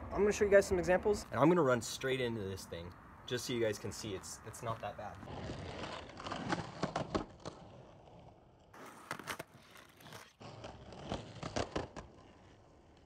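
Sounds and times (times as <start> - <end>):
skateboard wheels rolling on concrete: 0.0 - 13.0
skateboard clacking over cracks: 5.2 - 13.0.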